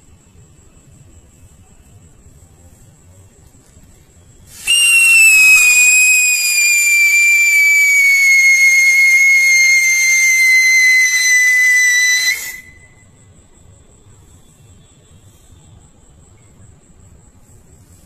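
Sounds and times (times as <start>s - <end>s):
firework sparks hissing: 3.8s - 13.0s
firework shrill whistle: 4.4s - 13.1s.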